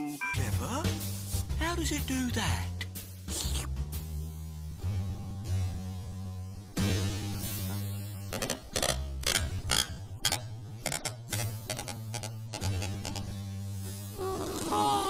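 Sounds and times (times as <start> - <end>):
rubber balloon squeaking: 8.3 - 13.3, 14.2 - 15.0.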